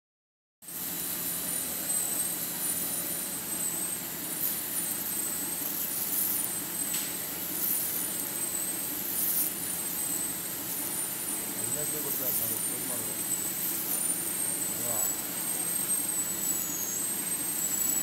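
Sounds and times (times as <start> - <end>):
machine motor humming: 0.7 - 18.0
rollers whirring: 0.7 - 18.0
faint high-pitched whistles: 13.8 - 18.0.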